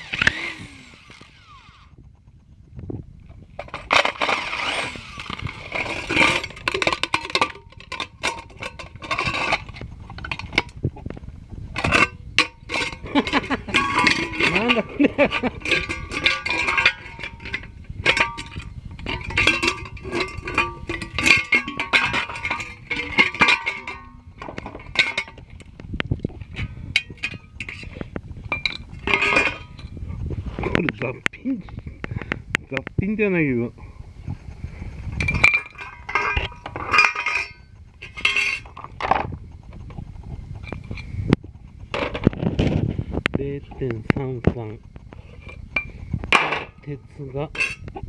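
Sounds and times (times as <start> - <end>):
metal parts clinking and clattering: 3.6 - 10.8, 11.8 - 25.5, 26.5 - 29.9, 35.2 - 39.2, 46.3 - 47.9.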